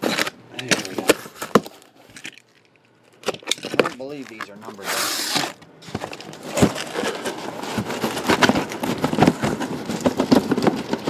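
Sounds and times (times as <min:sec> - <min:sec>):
cardboard rubbing: 0:04.1 - 0:11.0.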